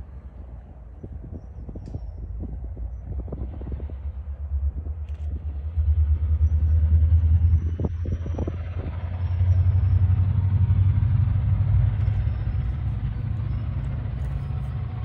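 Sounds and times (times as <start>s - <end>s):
locomotive idling: 8.6s - 15.0s.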